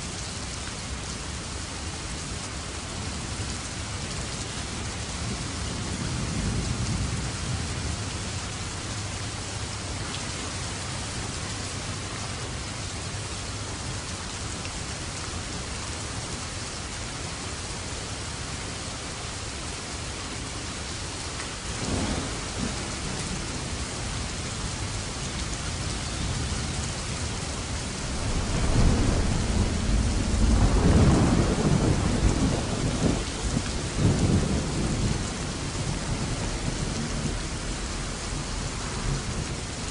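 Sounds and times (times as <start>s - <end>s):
steady rain: 0.0s - 39.9s
thunder rumbling: 21.7s - 39.8s
sharp thunder clap: 28.0s - 35.2s.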